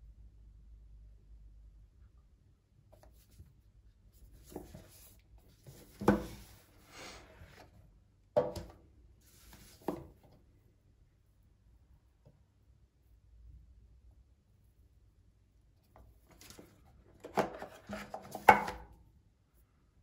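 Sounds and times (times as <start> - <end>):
phone case rubbing and scraping: 16.4 - 18.7.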